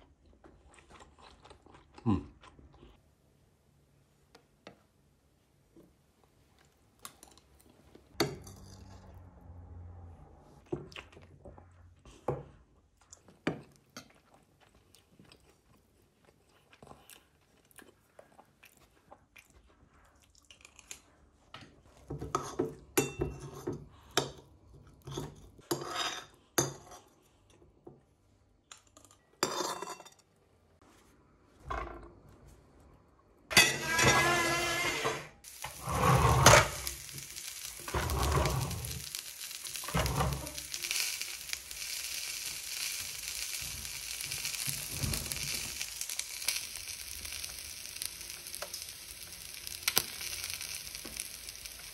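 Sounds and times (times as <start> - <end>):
chewing: 0.0 - 3.0, 13.0 - 21.5
metal spoon scraping ceramic plate: 25.7 - 26.3, 33.5 - 35.2.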